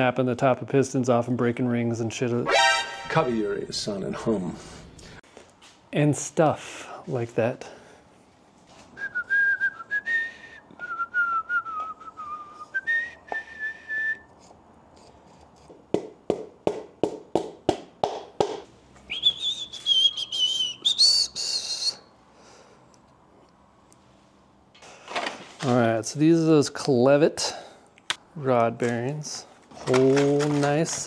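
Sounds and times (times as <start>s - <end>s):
man whistling a tune: 9.0s - 14.3s, 19.1s - 22.1s.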